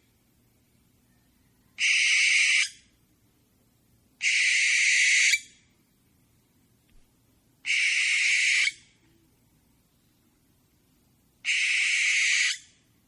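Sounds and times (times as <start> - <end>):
owl hissing screeches: 1.8 - 2.8, 4.2 - 5.5, 7.7 - 8.8, 11.4 - 12.7.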